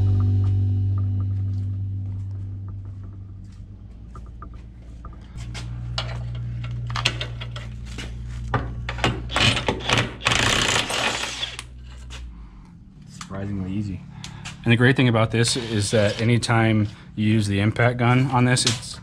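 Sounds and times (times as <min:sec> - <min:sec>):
impact wrench hammering: 0:08.9 - 0:11.6.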